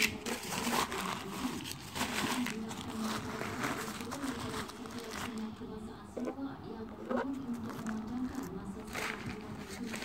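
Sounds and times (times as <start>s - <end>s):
paper wrapping rustling: 0.0s - 5.5s, 7.3s - 10.0s.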